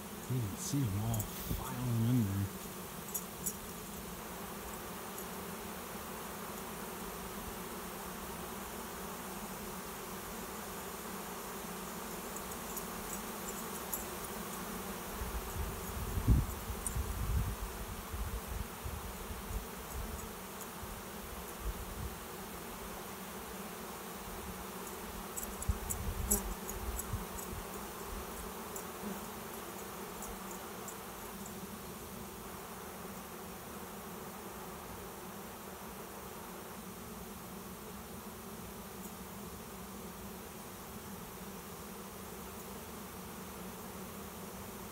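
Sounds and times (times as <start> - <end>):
bees buzzing: 0.0 - 16.0.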